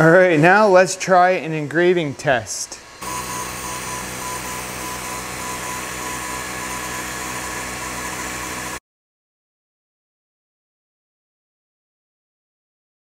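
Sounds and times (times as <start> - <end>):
fans hissing and humming: 0.0 - 8.8
faint laser head whine: 2.9 - 8.8.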